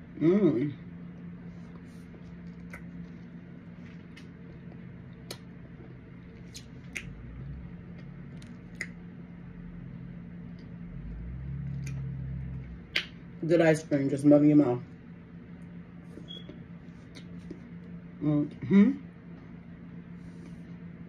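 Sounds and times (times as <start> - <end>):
low hum: 0.0 - 21.0
wet mouth clicks and smacks: 6.4 - 7.2, 8.3 - 9.0, 12.9 - 13.2.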